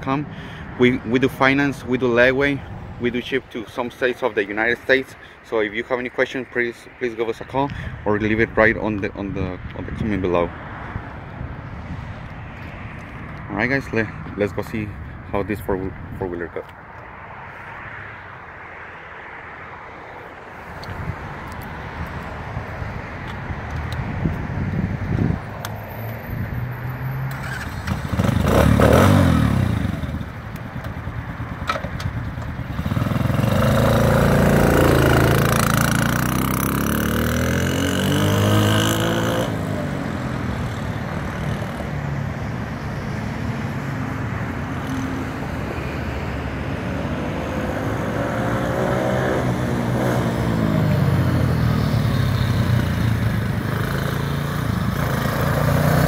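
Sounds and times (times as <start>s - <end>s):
atv engine accelerating: 26.8s - 42.0s, 47.1s - 56.0s.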